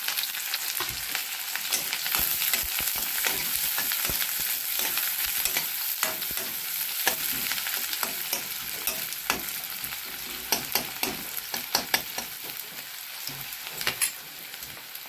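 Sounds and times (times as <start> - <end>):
onions sizzling in hot oil: 0.0 - 15.0
metal ladle scraping and clinking: 1.7 - 9.5.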